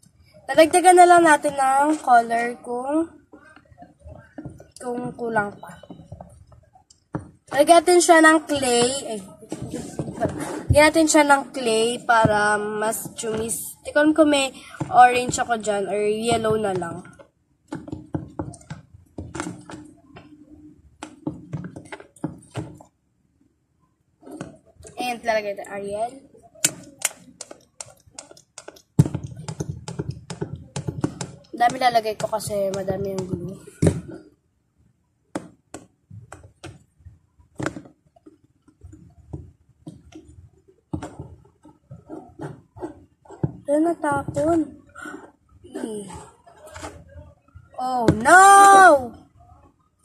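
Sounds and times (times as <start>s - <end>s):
soft handling noise: 8.6s - 11.1s
plastic containers clicking and knocking: 12.2s - 20.4s, 21.0s - 22.9s, 26.6s - 34.2s, 37.5s - 45.1s
sharp clicks and taps: 26.6s - 34.0s.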